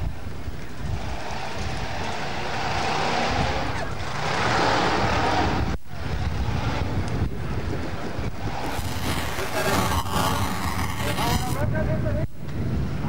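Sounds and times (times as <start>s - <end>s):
wind buffeting microphone: 0.0s - 4.1s, 4.8s - 13.0s.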